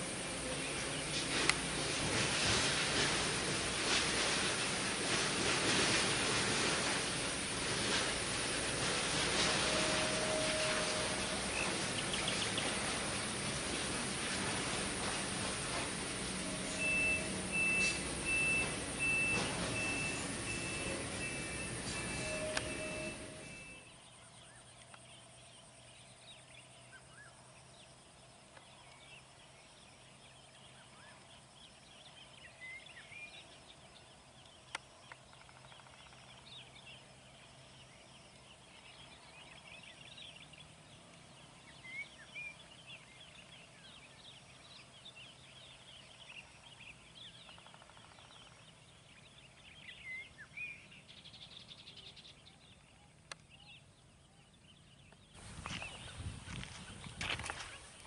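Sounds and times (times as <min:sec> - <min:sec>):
birds chirping and whistling: 0:15.7 - 0:24.6, 0:54.7 - 0:58.0.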